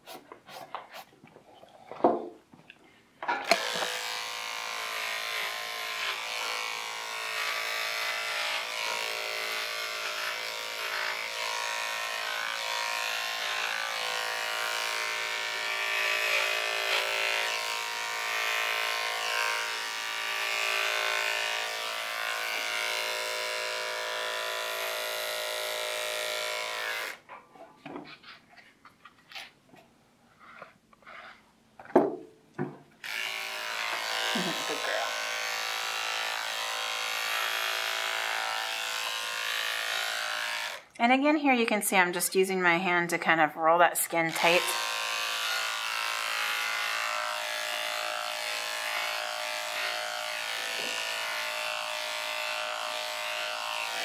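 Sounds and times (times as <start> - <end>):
electric clipper running: 3.4 - 27.2, 33.0 - 41.0, 44.1 - 54.0.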